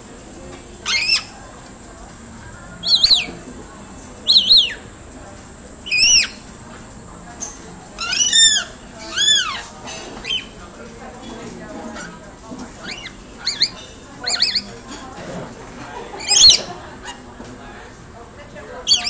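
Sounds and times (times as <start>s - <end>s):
parrots screeching: 0.8s - 1.4s, 2.8s - 3.3s, 4.3s - 4.8s, 5.9s - 6.4s, 8.0s - 10.6s, 12.8s - 14.8s, 16.1s - 17.2s.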